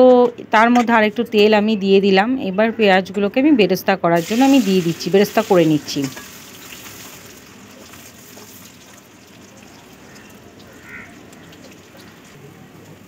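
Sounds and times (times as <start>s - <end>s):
onions sizzling in hot oil: 4.2s - 12.3s.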